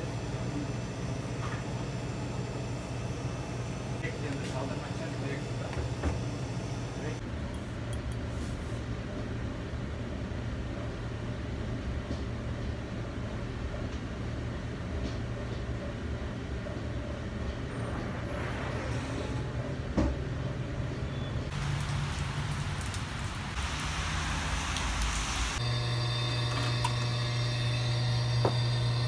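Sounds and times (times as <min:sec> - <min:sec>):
low hum of refrigeration: 0:00.0 - 0:29.0
traffic: 0:17.4 - 0:25.6
rain on a wet street: 0:21.5 - 0:25.6.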